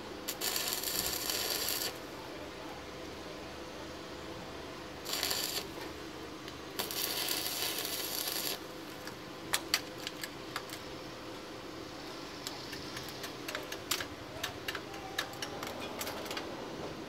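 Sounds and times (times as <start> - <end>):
welding arc crackling: 0.0 - 2.1, 5.0 - 10.9, 12.4 - 16.4.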